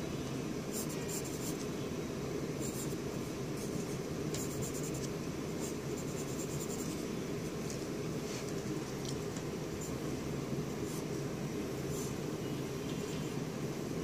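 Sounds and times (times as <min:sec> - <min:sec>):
low background hum: 0:00.0 - 0:14.0
pencil scratching on paper: 0:03.6 - 0:07.0.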